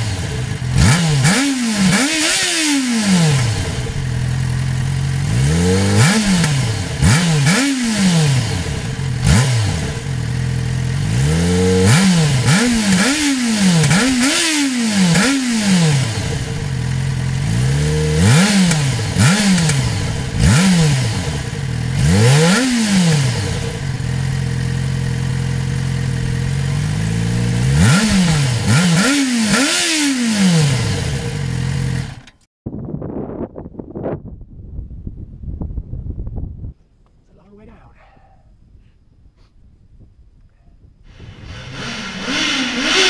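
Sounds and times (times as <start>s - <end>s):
motorcycle engine idling and revving: 0.0s - 32.5s, 41.1s - 43.0s
faint wind: 0.0s - 43.0s.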